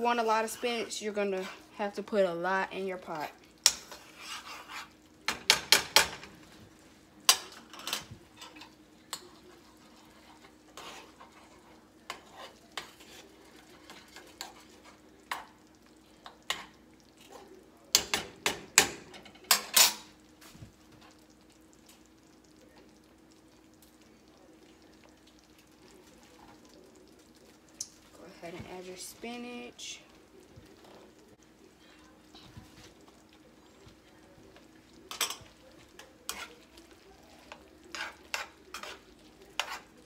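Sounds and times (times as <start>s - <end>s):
metal spoon clinking on skillets: 7.3s - 9.5s, 17.9s - 20.2s, 35.0s - 36.8s, 37.4s - 40.0s.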